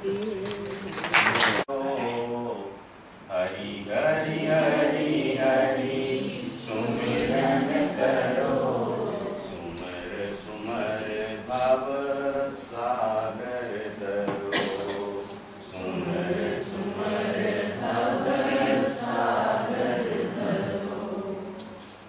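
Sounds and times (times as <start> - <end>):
group chanting: 3.4 - 21.8.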